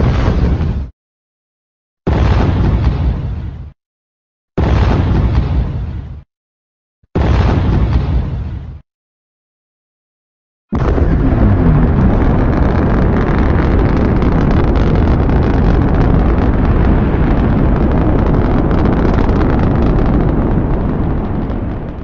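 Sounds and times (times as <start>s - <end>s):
monster noisy low rumble: 10.7s - 22.0s.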